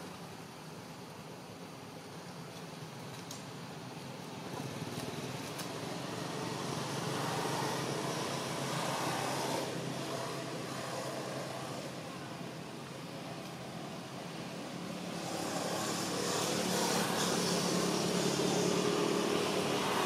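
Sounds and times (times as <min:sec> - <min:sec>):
road vehicle passing by: 0:04.5 - 0:12.7, 0:13.9 - 0:20.0.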